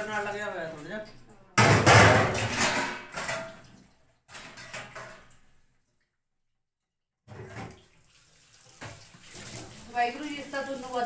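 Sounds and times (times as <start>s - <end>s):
tap water splashing into metal pan: 1.0s - 5.6s, 7.3s - 11.0s
dishes clinking: 1.6s - 3.6s.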